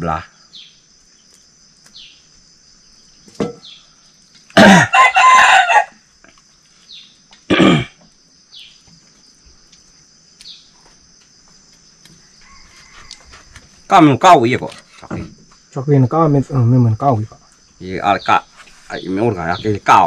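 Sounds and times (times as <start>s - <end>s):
rooster crowing: 4.6s - 6.1s, 12.2s - 13.7s.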